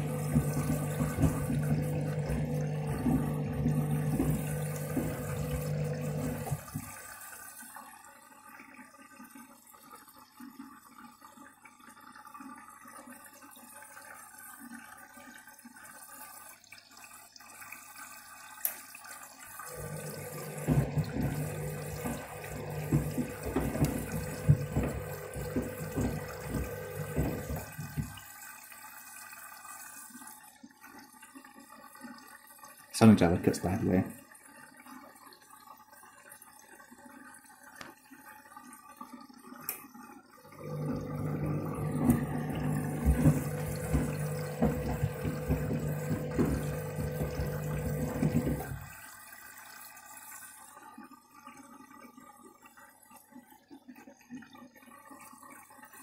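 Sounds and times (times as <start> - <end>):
shoes knocking in drum: 0.0 - 6.9, 20.4 - 28.2, 42.0 - 48.8
water sloshing: 0.0 - 7.0, 19.7 - 28.3, 40.6 - 49.0
washing machine motor hum: 0.0 - 7.4, 19.6 - 28.4, 40.4 - 49.7.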